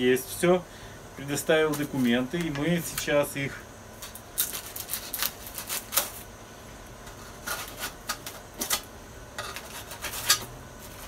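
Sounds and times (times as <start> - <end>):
hands rustling paper and foil: 4.0 - 6.2.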